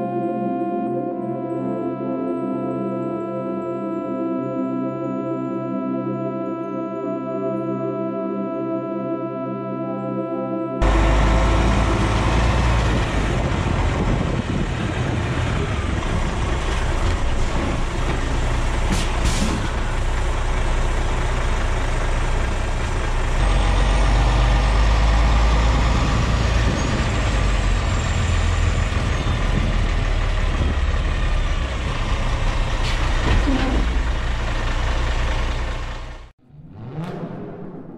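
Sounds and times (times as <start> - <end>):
truck diesel engine rumbling: 10.8 - 37.0.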